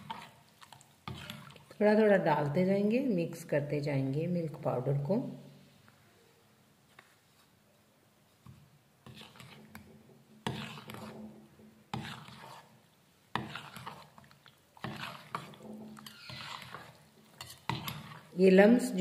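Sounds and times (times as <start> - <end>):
spoon stirring in steel bowl: 0.0 - 2.6, 8.3 - 19.0.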